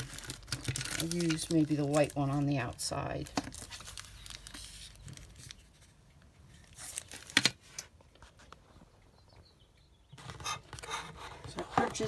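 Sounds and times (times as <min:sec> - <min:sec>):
plastic bag rustling and crackling: 0:00.0 - 0:05.9.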